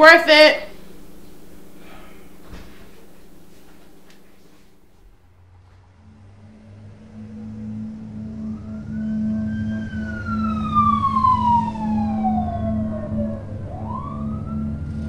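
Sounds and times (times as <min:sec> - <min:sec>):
steady low hum: 0:00.0 - 0:15.0
emergency vehicle siren wailing: 0:05.9 - 0:15.0.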